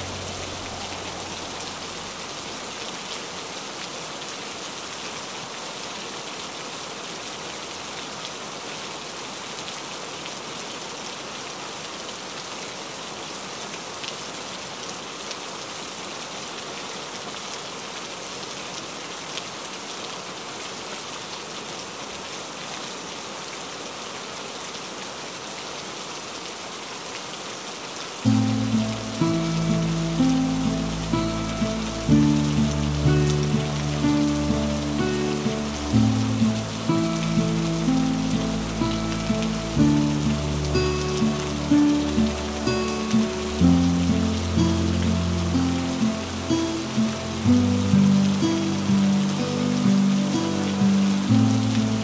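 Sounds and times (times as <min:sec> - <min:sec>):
rain on window glass: 0:00.0 - 0:08.8, 0:26.5 - 0:52.0.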